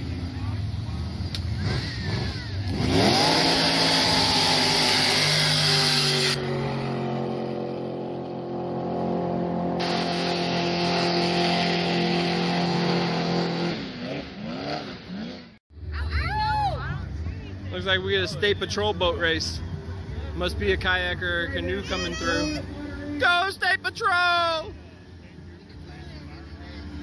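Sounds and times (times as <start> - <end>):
jet boat engine revving: 1.3 - 15.6.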